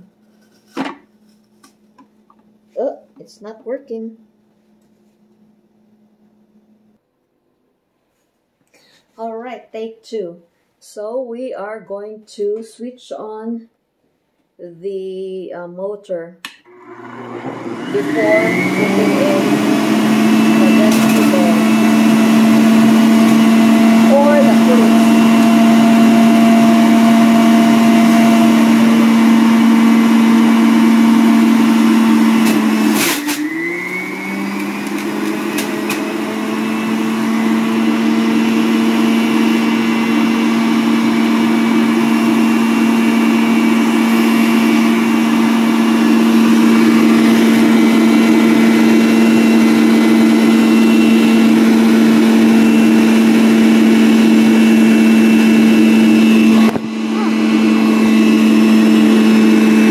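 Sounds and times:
juicer motor humming: 0:16.7 - 0:59.9.

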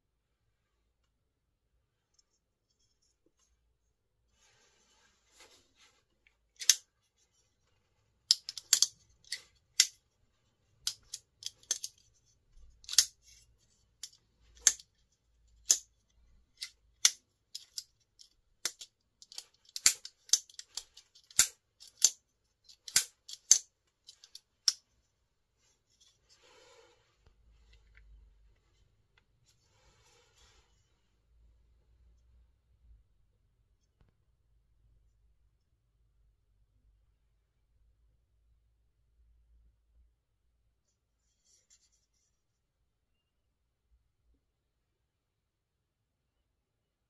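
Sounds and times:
folding knife clicking open and shut: 0:06.6 - 0:06.8, 0:08.3 - 0:10.0, 0:12.8 - 0:13.2, 0:18.6 - 0:23.6.

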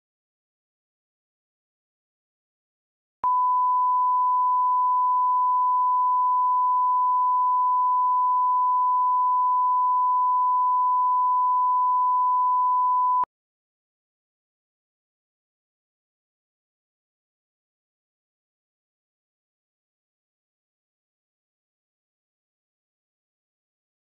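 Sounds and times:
steady test tone beep: 0:03.2 - 0:13.3.

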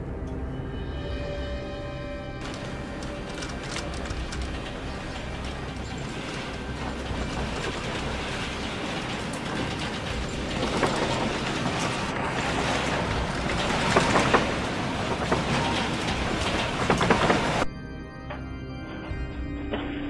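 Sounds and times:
rattling and clattering: 0:02.4 - 0:17.7
steady noisy rumble: 0:02.4 - 0:17.7.

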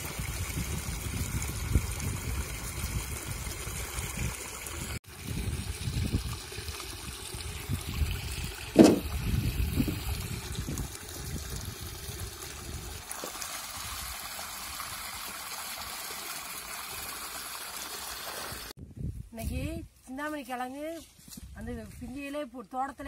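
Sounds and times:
splashing water: 0:00.0 - 0:18.8
water gushing from hose into pot: 0:00.0 - 0:18.8
loud thud: 0:08.8 - 0:09.2.

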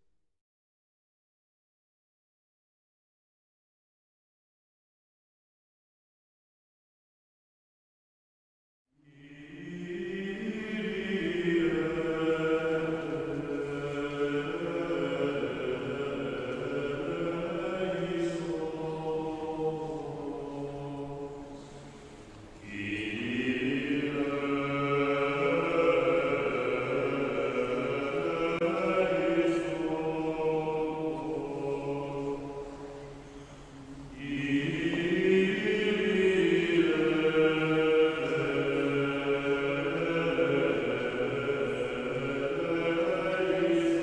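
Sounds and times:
choral chant: 0:09.0 - 0:44.0.

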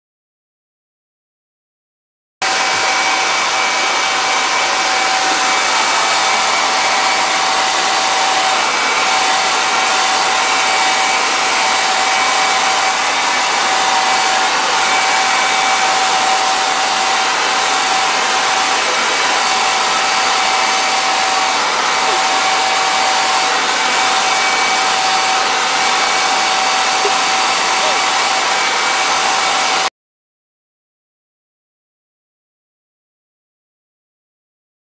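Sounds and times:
hair dryer running: 0:02.4 - 0:29.9.

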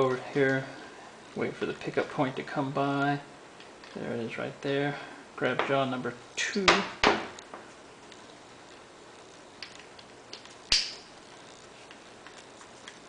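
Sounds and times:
sharp metallic click: 0:09.6 - 0:11.1.

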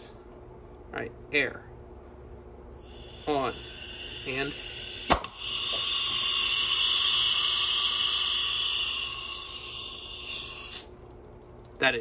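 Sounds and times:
compressed air hissing: 0:02.8 - 0:10.9.

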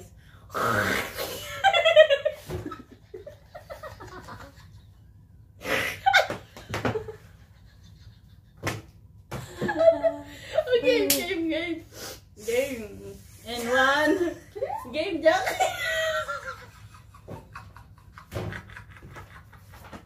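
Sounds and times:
women laughing: 0:01.4 - 0:05.1, 0:05.8 - 0:08.7, 0:09.4 - 0:10.8, 0:15.3 - 0:20.0.

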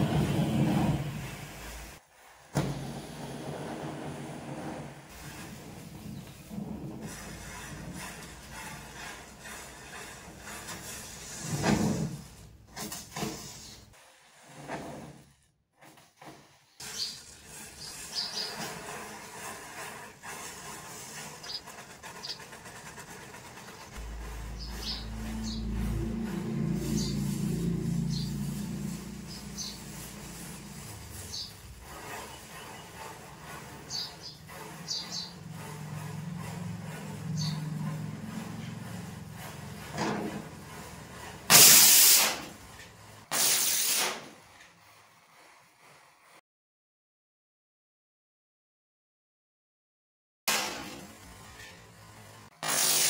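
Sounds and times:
firework rushing hiss of sparks: 0:41.4 - 0:46.4, 0:50.5 - 0:53.0
match heads flaring: 0:52.6 - 0:53.0.

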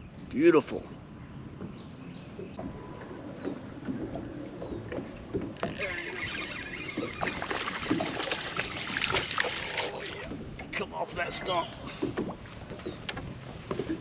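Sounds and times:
water lapping against boat hull: 0:01.2 - 0:14.0
water splashes and clicks: 0:02.4 - 0:06.2, 0:06.8 - 0:10.9, 0:11.6 - 0:14.0.

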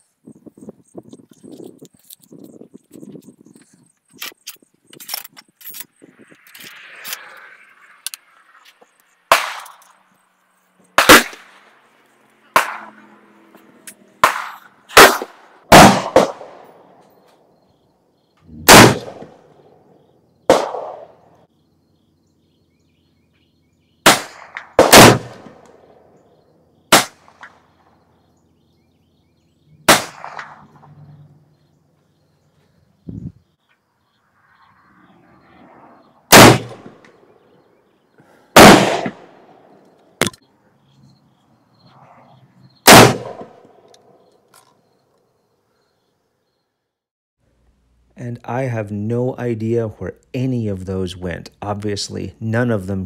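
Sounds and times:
gunshots with echo: 0:09.3 - 0:09.7, 0:11.0 - 0:11.6, 0:12.5 - 0:13.1, 0:14.2 - 0:16.8, 0:18.5 - 0:19.6, 0:20.5 - 0:21.2, 0:24.0 - 0:25.6, 0:26.9 - 0:27.6, 0:29.8 - 0:30.9, 0:36.3 - 0:37.0, 0:38.6 - 0:39.6, 0:42.9 - 0:43.6.

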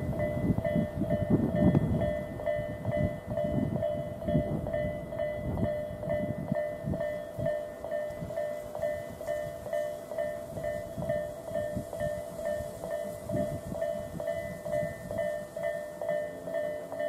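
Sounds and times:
level crossing warning bell: 0:00.0 - 0:17.0.

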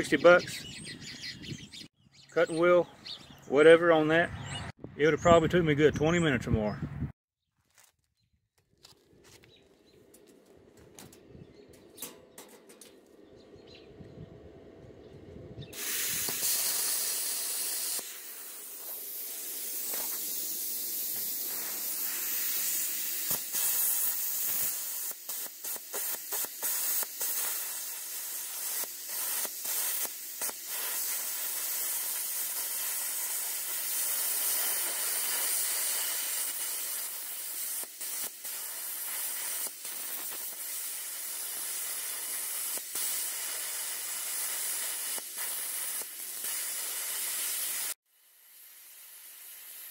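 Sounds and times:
plasma cutter hissing: 0:15.7 - 0:49.9.

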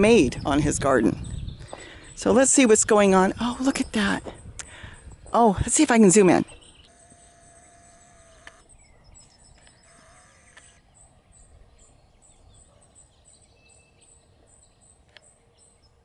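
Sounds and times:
high bird chirps: 0:06.5 - 0:15.4.

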